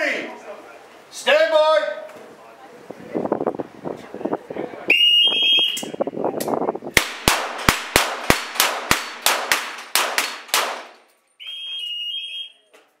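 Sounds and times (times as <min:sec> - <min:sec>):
pistol shots fired rapidly: 0:07.0 - 0:10.9.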